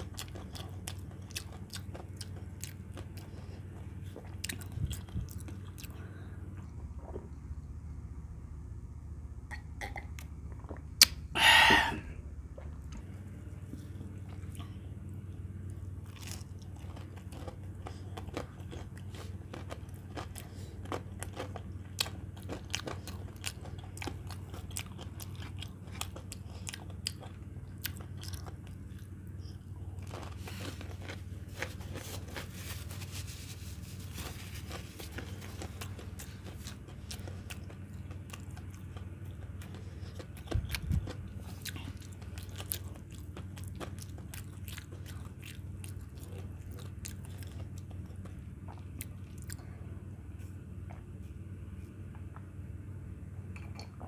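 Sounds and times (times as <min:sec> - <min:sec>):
chewing crunches: 0:00.0 - 0:07.7, 0:09.8 - 0:49.9
wet mouth clicks: 0:09.8 - 0:12.0.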